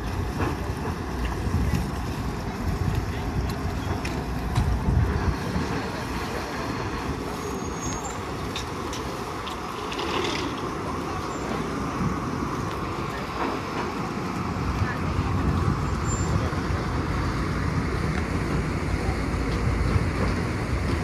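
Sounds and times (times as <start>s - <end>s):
wind on microphone: 1.3s - 6.0s.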